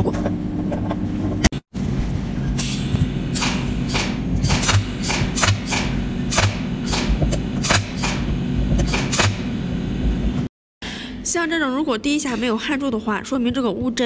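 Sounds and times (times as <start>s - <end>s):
steady low hum: 0.0s - 14.0s
welder snapping zaps: 2.6s - 9.6s.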